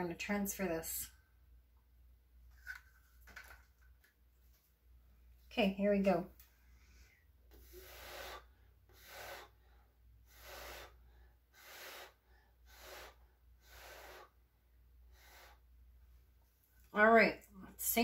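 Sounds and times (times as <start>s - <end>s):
soft human breaths: 6.4s - 15.8s.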